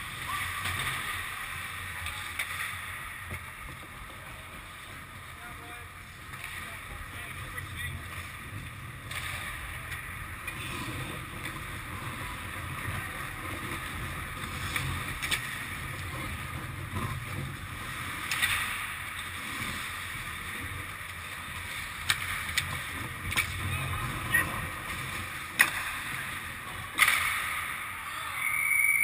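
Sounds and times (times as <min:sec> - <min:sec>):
skate blades scraping ice: 0:00.0 - 0:28.0
low hum of ice rink: 0:00.0 - 0:29.0
sharp clacks: 0:26.9 - 0:27.8.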